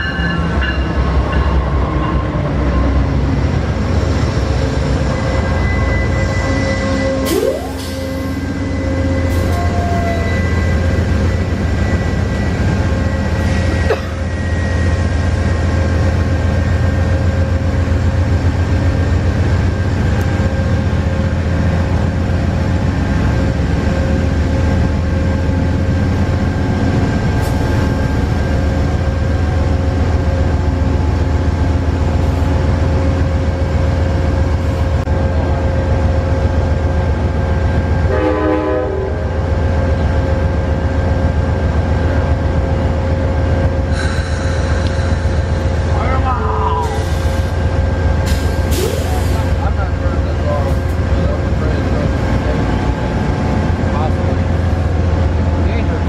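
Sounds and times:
train wheels rumbling on rail: 0.0s - 56.0s.

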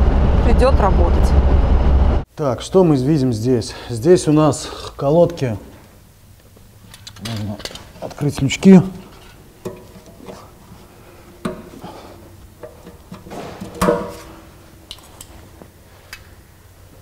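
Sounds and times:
metal clinks and knocks: 12.6s - 15.3s.

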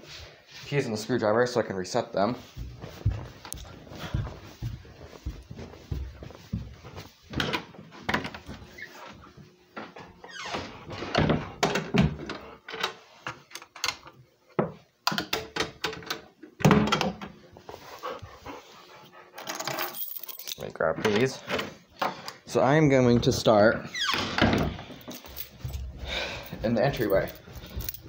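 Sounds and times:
knocks and handling noise: 2.4s - 10.1s, 24.4s - 28.0s.

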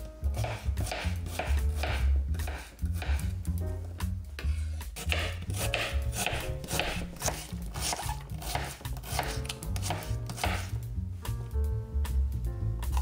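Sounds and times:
knife chopping onion on board: 0.4s - 3.4s, 4.4s - 10.7s.

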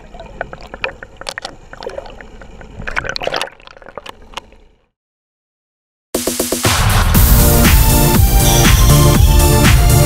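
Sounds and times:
water sloshing and gurgling: 0.0s - 4.9s.

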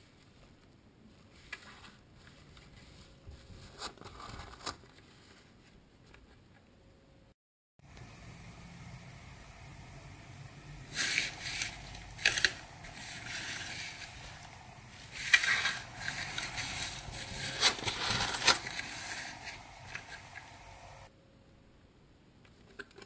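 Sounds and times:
foil packets crinkling: 10.9s - 20.8s.

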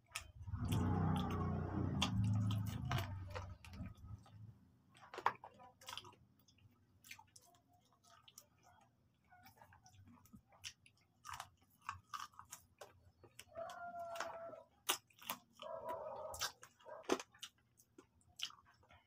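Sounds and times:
person chewing: 0.0s - 19.0s
low hum: 0.4s - 4.7s.

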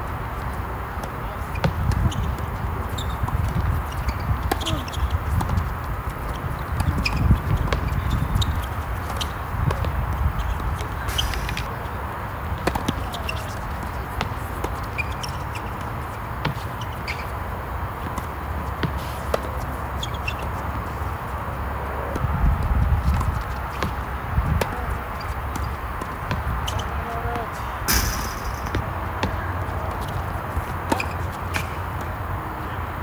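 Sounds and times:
shoes scuffing on court: 0.4s - 21.3s, 22.2s - 32.2s
ball bouncing on hard court: 1.0s - 11.7s, 12.6s - 17.3s, 18.0s - 20.6s, 23.0s - 32.1s
tennis ball hit with rackets: 4.4s - 5.6s, 12.6s - 15.3s, 18.0s - 19.6s, 25.5s - 32.2s.

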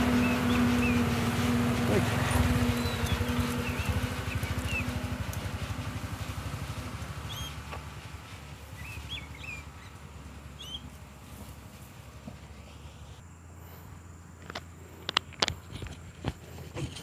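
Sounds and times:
truck engine pulsing: 0.0s - 13.2s
high bird chirps: 2.6s - 5.0s, 8.8s - 10.0s, 10.6s - 10.9s.

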